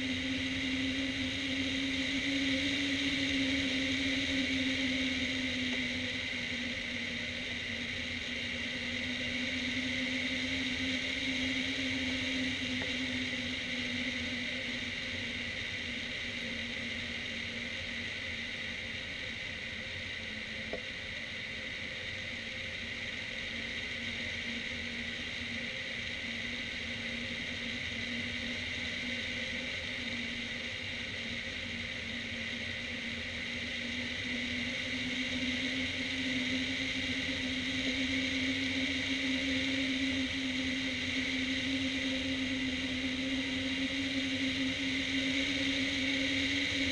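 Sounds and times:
constant hum: 0:00.0 - 0:46.9
faint tick: 0:20.7 - 0:20.9.

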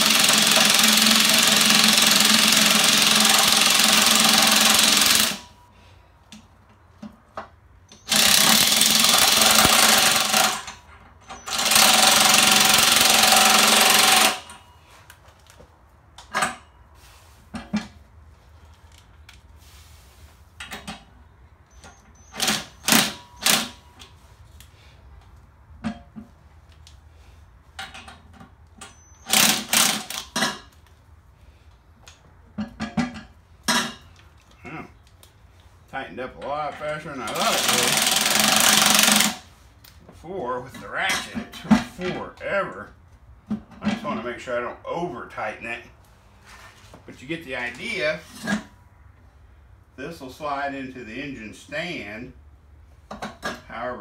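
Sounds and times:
impact wrench hammering bolt: 0:00.0 - 0:05.5, 0:08.0 - 0:10.8, 0:22.4 - 0:23.8, 0:29.2 - 0:30.7, 0:37.3 - 0:39.4.

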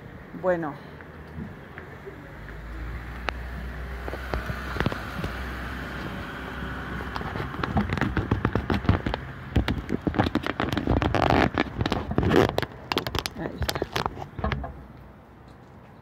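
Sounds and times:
crackling handling noise: 0:06.9 - 0:16.0.

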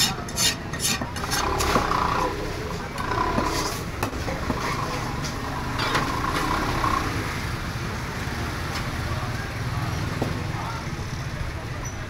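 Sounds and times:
market background rumble: 0:00.0 - 0:12.0.

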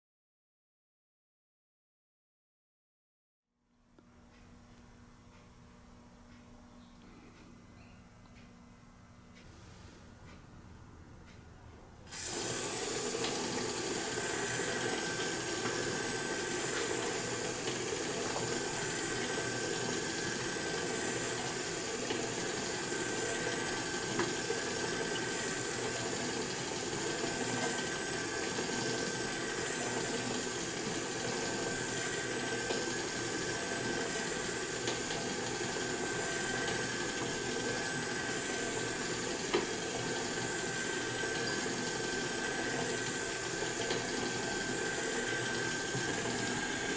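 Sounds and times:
motor whirring with high whine: 0:12.1 - 0:46.9.

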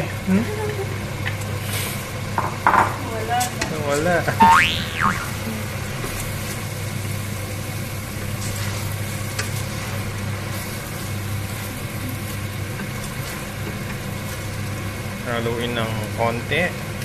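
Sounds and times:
food sizzling in a pot: 0:04.4 - 0:17.0.

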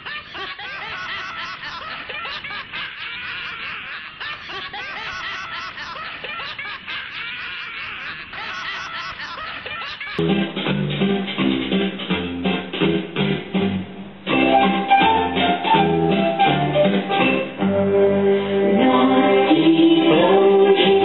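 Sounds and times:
many voices laughing: 0:00.0 - 0:10.2.

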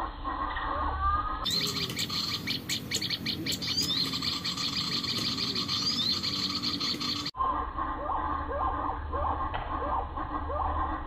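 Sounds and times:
birds chirping: 0:01.4 - 0:07.4.

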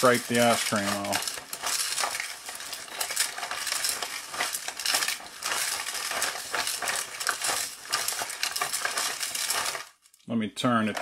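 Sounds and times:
ice and salt rattling in drum: 0:00.0 - 0:11.0.

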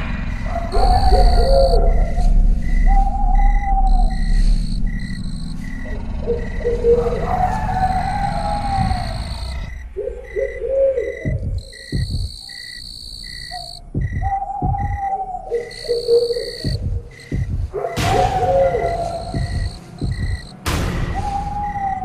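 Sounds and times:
cricket-like chirp: 0:00.0 - 0:22.0
wavering hoot-like tones: 0:00.2 - 0:22.0
low thumps: 0:07.8 - 0:22.0.

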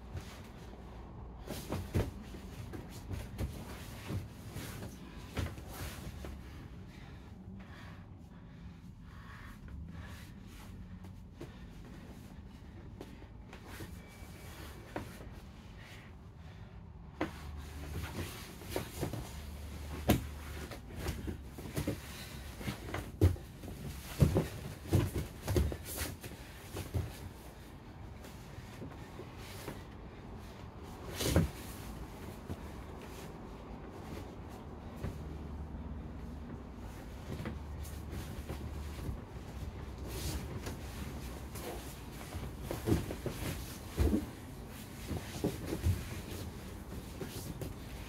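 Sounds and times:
low steady hum: 0:00.0 - 0:48.0
bodies thumping on mats: 0:01.4 - 0:06.2, 0:17.2 - 0:27.4, 0:36.8 - 0:48.0.

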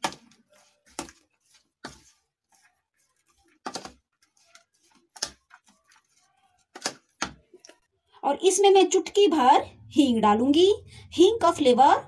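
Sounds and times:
spoon stirring in plastic bowl: 0:00.0 - 0:07.9.

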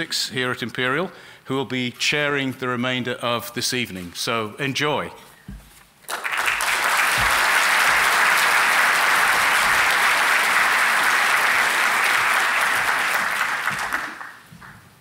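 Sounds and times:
large audience applauding: 0:06.1 - 0:14.8.

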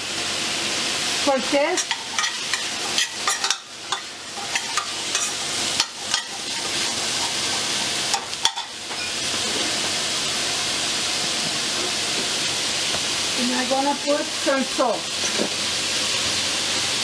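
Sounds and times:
vegetables sizzling in oil: 0:00.0 - 0:17.0
metal spoon scraping a pot: 0:01.8 - 0:08.7.

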